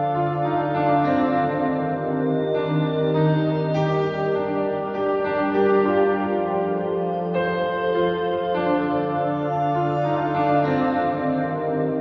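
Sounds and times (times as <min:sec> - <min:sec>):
soft new-age music: 0:00.0 - 0:12.0.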